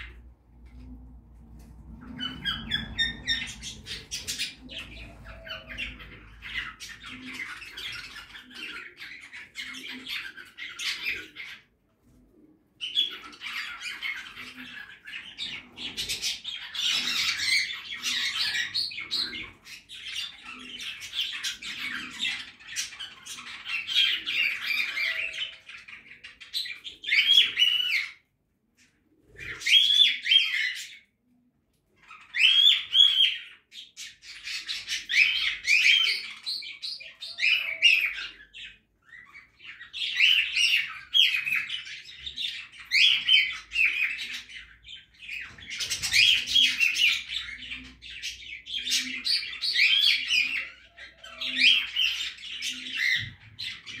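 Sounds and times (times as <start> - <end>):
budgerigars chattering and warbling: 1.9 - 11.8, 12.8 - 28.2, 29.3 - 31.0, 32.0 - 54.0.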